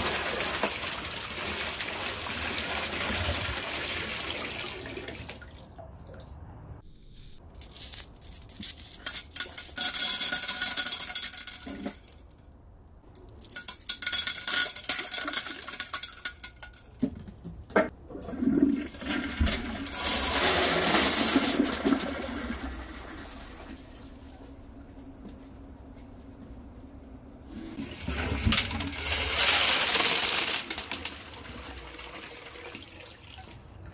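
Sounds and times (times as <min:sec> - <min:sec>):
toilet flushing: 0:00.0 - 0:05.6, 0:18.1 - 0:24.3, 0:27.6 - 0:33.9
small objects splashing into water: 0:28.1 - 0:32.2.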